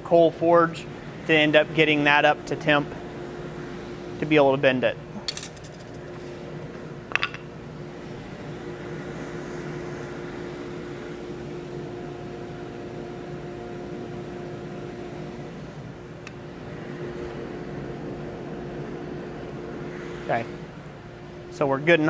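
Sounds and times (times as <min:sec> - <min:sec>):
forge air blower humming: 0:00.0 - 0:22.0.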